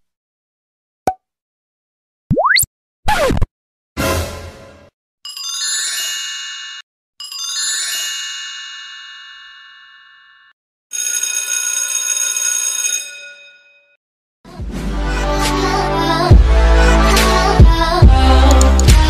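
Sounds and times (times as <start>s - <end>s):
bell-like chime: 5.3s - 10.6s.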